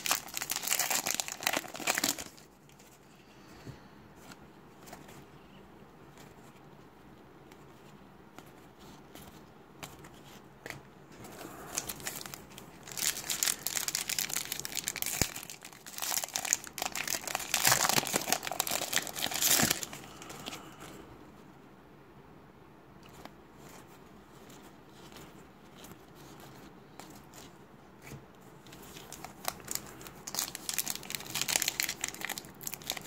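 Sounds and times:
foil wrapper crinkling and tearing: 0.0 - 2.5, 11.6 - 20.6, 28.7 - 33.0.

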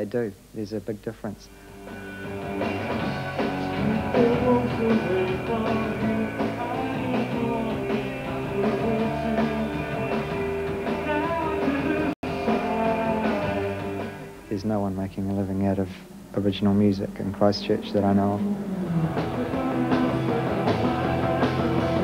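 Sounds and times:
drums: 0.0 - 22.0
electric guitar: 1.5 - 14.5, 17.6 - 22.0
bass guitar: 1.5 - 22.0.

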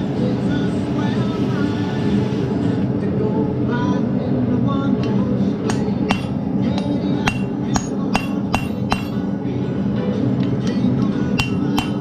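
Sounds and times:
hammer striking hot steel on anvil: 5.7 - 9.3, 11.4 - 12.0.

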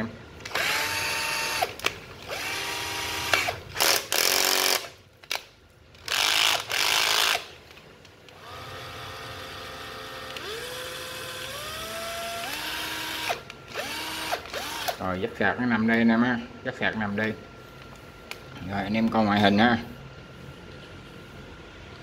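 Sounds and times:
cordless drill motor whine: 0.5 - 4.9, 8.3 - 15.0.

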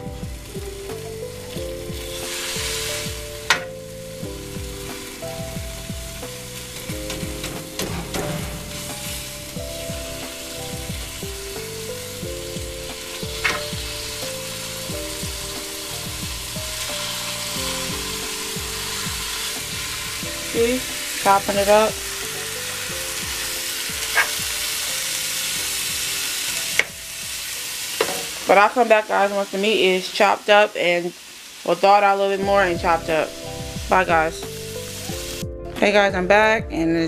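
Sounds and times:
beef sizzling in a pan: 0.0 - 35.4
meat chopper knocking pan: 12.5 - 14.2, 22.9 - 24.8, 25.5 - 28.4.

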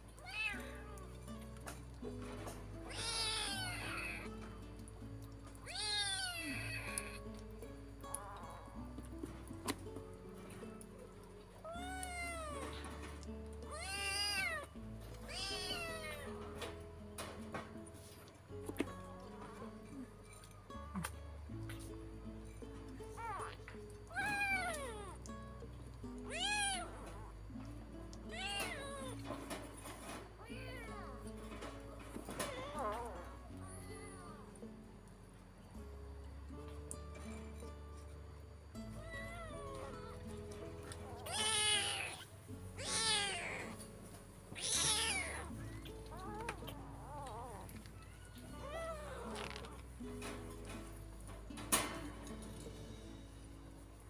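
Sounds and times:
background music with held notes: 0.0 - 54.0
kitten mewing: 2.9 - 4.4, 5.6 - 7.3, 11.6 - 12.8, 13.7 - 16.3, 23.2 - 25.2, 26.3 - 27.2, 28.3 - 29.2, 41.0 - 43.9, 44.5 - 49.8.

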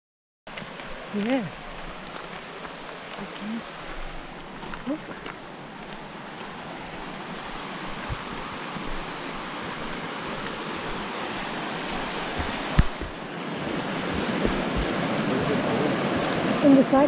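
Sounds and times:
running water rushing: 0.5 - 17.0
dull knocks: 7.9 - 9.2, 12.0 - 13.2, 14.1 - 15.0.

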